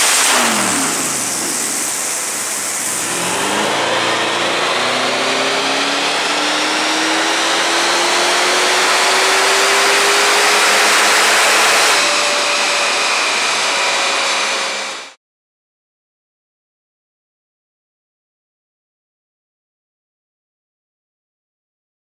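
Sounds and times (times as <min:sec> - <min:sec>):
car engine revving at full throttle: 0:00.0 - 0:15.2
steady whine coasting down: 0:00.0 - 0:15.2.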